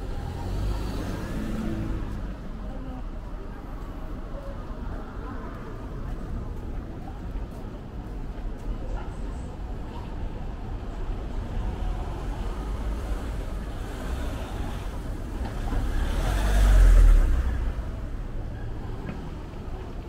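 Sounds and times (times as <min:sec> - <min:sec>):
street traffic rumble: 0:00.0 - 0:20.0
car driving past: 0:15.5 - 0:17.8.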